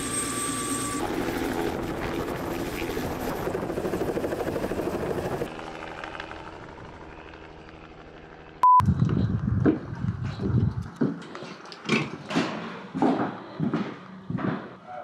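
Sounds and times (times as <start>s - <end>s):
helicopter rotor chopping: 0.0s - 11.3s
electronic beep: 8.6s - 8.9s.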